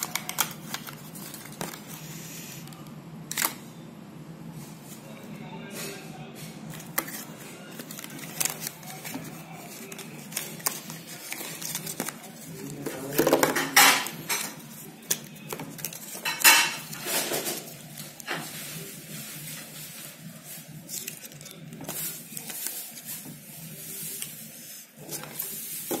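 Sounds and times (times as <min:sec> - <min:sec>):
cardboard and paper rustling: 0:00.0 - 0:02.7, 0:06.7 - 0:26.0.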